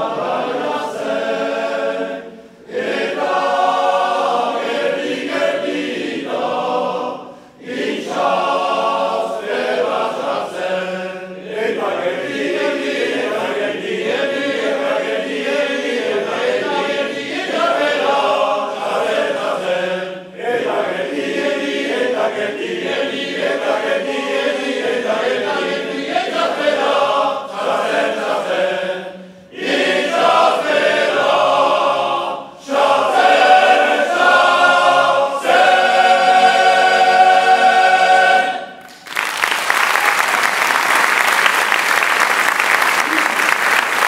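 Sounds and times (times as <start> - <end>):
men's choir singing a cappella: 0.0 - 38.8
applause: 38.8 - 44.0.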